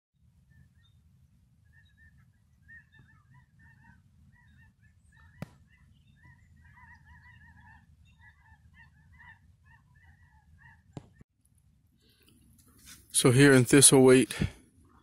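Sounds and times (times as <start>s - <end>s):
geese honking: 1.6s - 11.2s.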